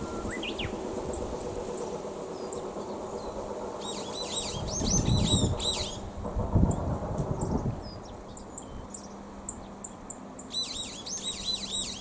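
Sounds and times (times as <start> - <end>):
bird whistling and singing: 0.0 - 0.8, 3.8 - 6.0, 10.5 - 12.0.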